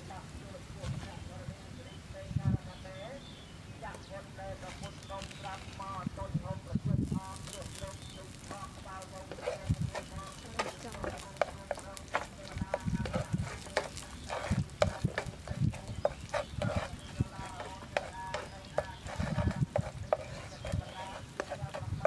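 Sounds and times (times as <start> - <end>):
oil sizzling: 7.0 - 22.0
spatula scraping a frying pan: 7.0 - 22.0.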